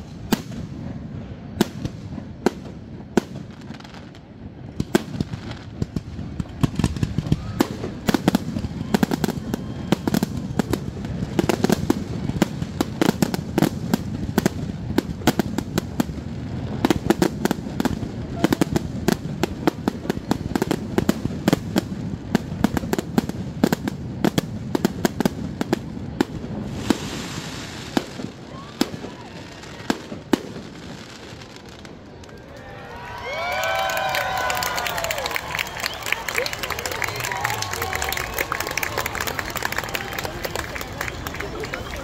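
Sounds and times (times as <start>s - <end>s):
fireworks bursting and cracking: 0.0s - 32.5s, 33.3s - 42.0s
fireworks hiss: 10.4s - 31.9s.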